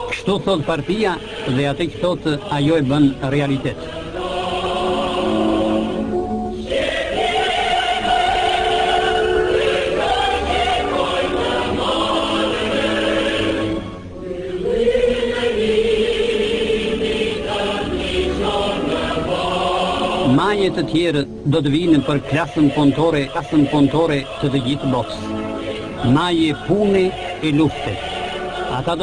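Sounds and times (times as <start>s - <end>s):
choir singing held notes: 0.0s - 29.0s.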